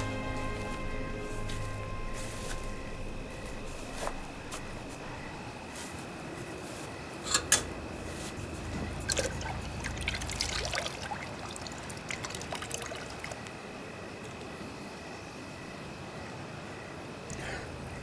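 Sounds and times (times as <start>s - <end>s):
faint high hum: 0.0s - 18.0s
trickling liquid: 8.7s - 14.5s.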